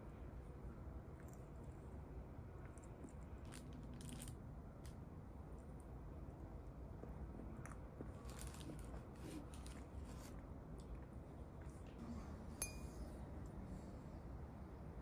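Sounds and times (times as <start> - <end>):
sharp ringing clink: 12.6 - 13.2.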